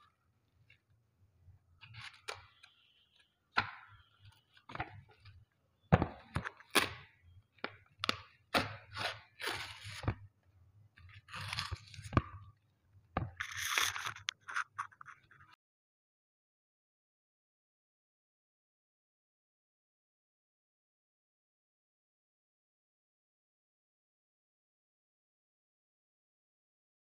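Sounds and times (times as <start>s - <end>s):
plastic packaging crinkling: 13.4s - 14.9s.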